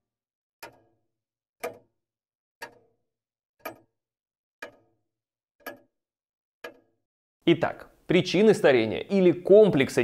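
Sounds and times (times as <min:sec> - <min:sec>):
mechanical clock ticking: 0:00.6 - 0:06.0, 0:06.6 - 0:08.4.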